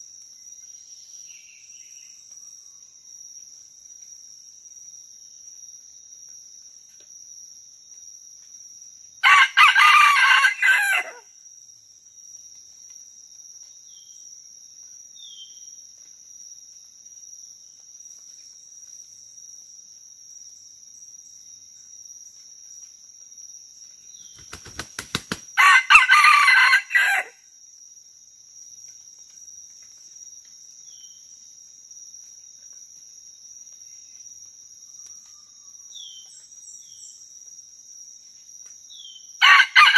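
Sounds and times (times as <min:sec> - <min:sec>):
high insect trill: 0:00.0 - 0:39.9
rooster crowing: 0:09.2 - 0:11.3, 0:25.6 - 0:27.4, 0:39.4 - 0:39.9.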